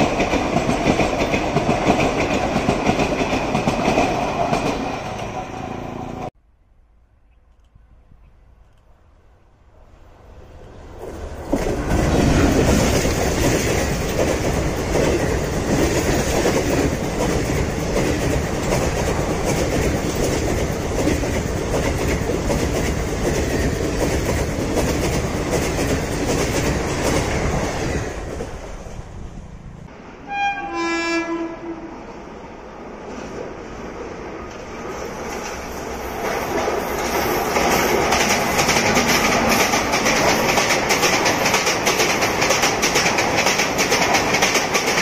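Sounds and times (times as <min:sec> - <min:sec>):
train passing at speed: 0:00.0 - 0:06.4, 0:07.8 - 0:45.0
train horn blast: 0:30.2 - 0:32.1.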